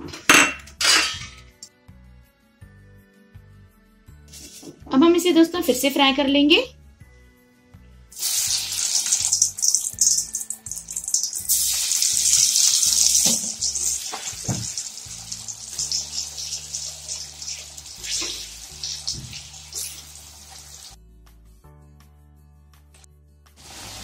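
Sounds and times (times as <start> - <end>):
soft background music: 0.0 - 24.0
potatoes sizzling in hot fat: 8.1 - 21.0, 23.6 - 24.0.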